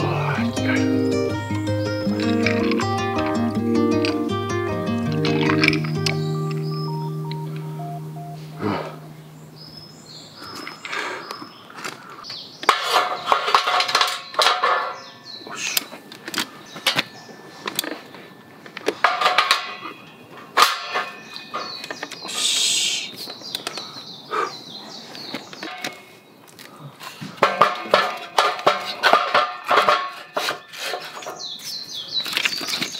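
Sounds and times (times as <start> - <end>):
held music tone: 0.0 - 10.6
metal knocks and clinks: 16.0 - 22.1.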